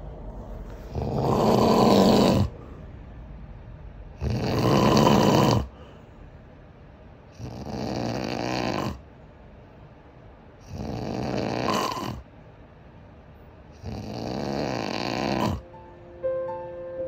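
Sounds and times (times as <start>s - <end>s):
quiet breathing: 0.0s - 4.1s, 5.6s - 6.7s
man snoring: 0.9s - 2.5s, 4.2s - 5.7s, 7.4s - 9.0s, 10.7s - 12.2s, 13.8s - 15.6s.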